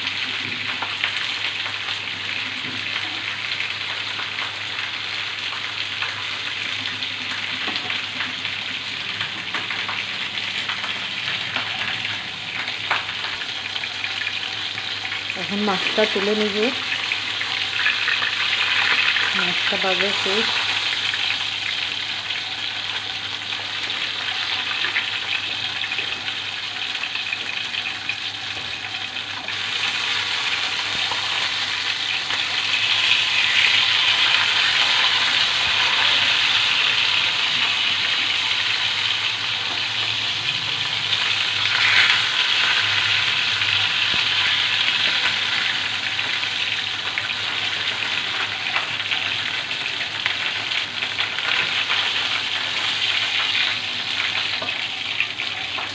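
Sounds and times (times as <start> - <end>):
fish frying in hot oil: 0.0 - 55.9.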